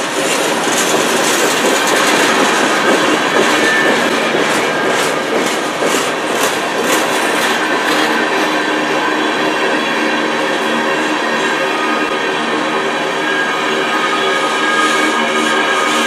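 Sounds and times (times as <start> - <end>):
wheels clicking over rail joints: 0.0 - 8.6
train wheels rumbling on rail: 0.0 - 16.0.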